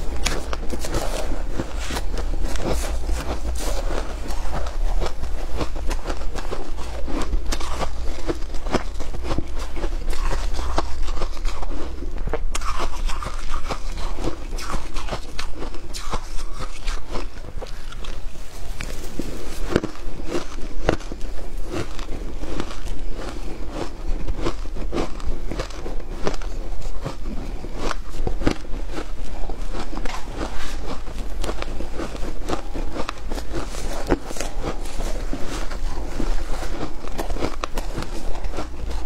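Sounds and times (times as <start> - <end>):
crunching shaved ice: 0.0 - 39.0.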